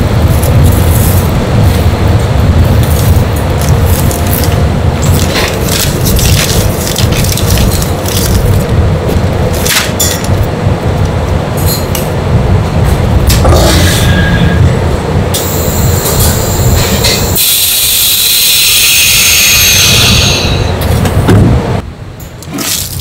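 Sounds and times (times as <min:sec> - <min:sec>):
air hissing into chamber: 0:15.4 - 0:20.7.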